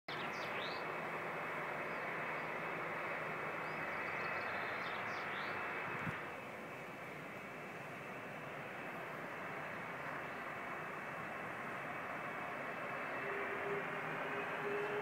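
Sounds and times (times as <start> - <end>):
bird chirps: 0.1 - 0.9, 3.6 - 5.6
steady rushing noise: 0.1 - 15.0.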